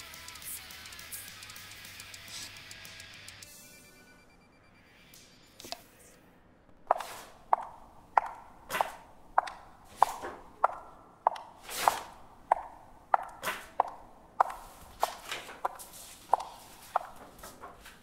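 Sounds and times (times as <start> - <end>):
high heels clicking on hard floor: 6.9 - 17.7.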